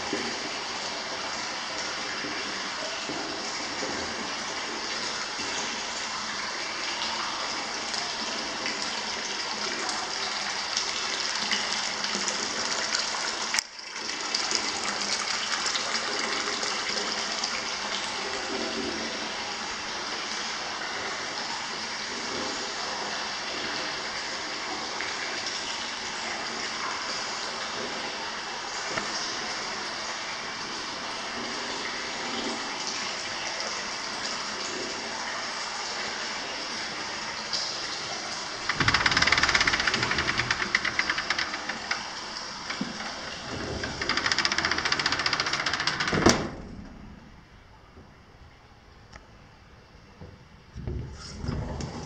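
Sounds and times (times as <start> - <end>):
running water rushing: 0.0 - 52.0
sliding door rattling on track: 38.4 - 47.3
sliding door banging shut: 38.4 - 47.5.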